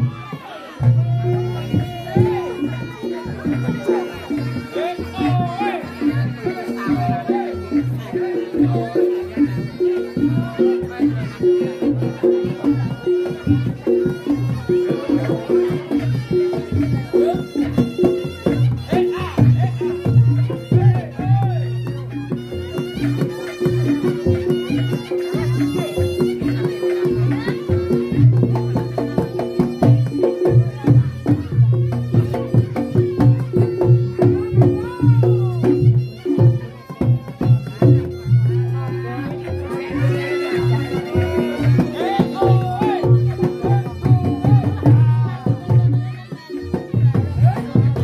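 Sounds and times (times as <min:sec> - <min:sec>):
hand drums beating: 0:00.0 - 0:48.0.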